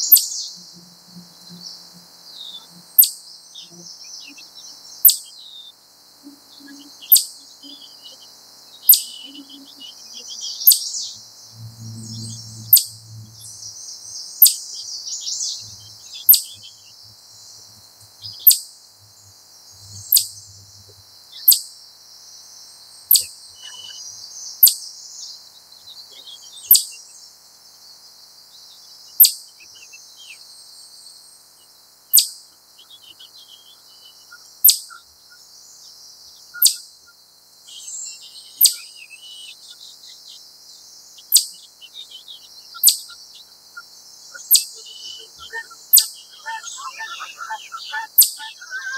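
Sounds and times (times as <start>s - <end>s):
faint bird twittering: 0.0s - 21.6s, 22.3s - 27.3s, 28.6s - 30.6s, 31.6s - 48.9s
chipmunk chip call: 6.3s - 11.2s, 15.4s - 16.9s, 32.1s - 35.0s, 36.6s - 36.8s, 37.8s - 40.0s, 41.2s - 43.4s, 44.3s - 48.9s.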